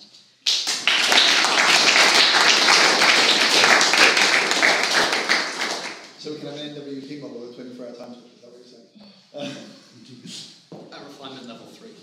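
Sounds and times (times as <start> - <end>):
audience applauding: 0.5 - 6.2.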